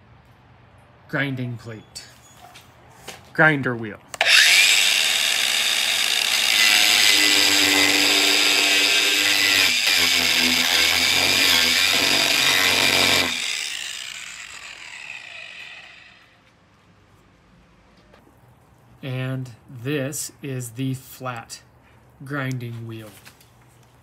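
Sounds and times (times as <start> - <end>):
angle grinder grinding wood: 4.2 - 16.4.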